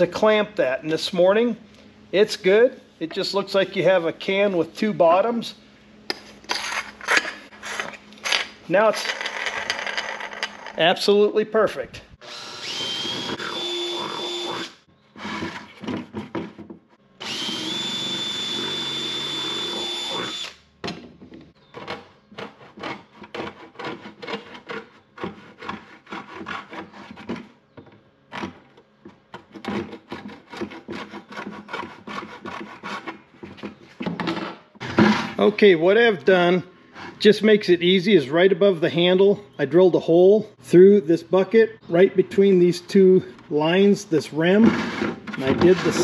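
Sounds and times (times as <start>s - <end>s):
cordless drill whining: 12.2s - 15.6s, 17.2s - 20.6s
hacksaw cutting plastic: 12.7s - 17.8s, 21.7s - 27.6s, 28.3s - 33.8s, 44.6s - 46.0s.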